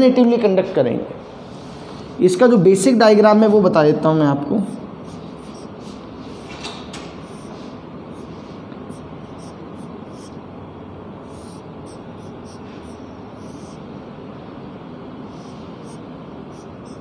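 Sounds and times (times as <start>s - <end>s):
steady background hiss: 3.6s - 17.0s
marker pen on whiteboard: 4.7s - 10.5s, 11.1s - 14.5s, 15.2s - 17.0s.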